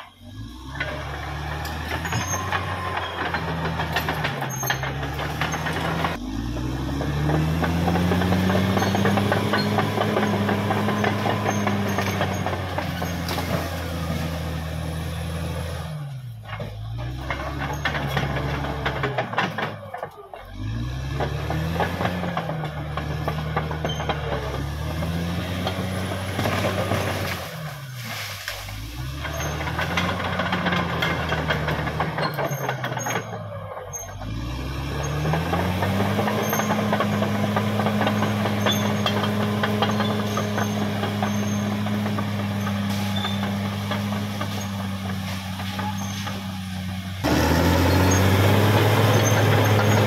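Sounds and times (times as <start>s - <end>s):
bulldozer diesel engine running: 0.0s - 50.0s
constant rattle: 0.0s - 50.0s.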